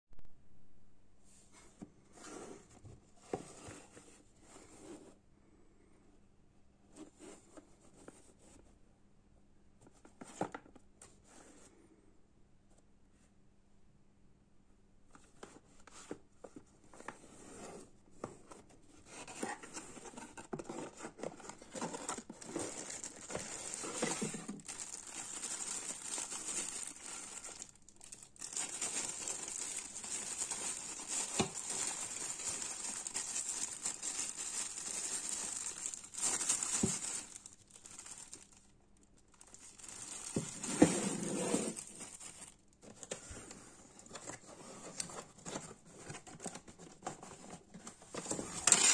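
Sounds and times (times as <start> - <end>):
plastic bag crinkling: 21.2 - 42.7, 48.5 - 48.9.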